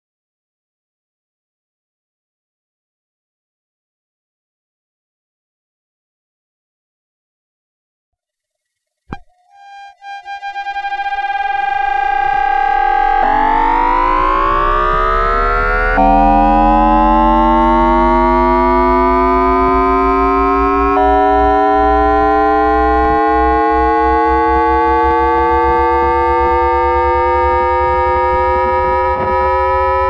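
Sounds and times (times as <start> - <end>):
train inverter whine rising: 9.6 - 30.0.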